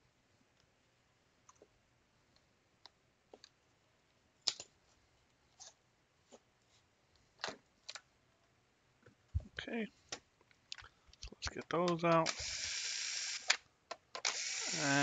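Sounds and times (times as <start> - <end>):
plastic parts clicking and tapping: 10.1 - 12.5.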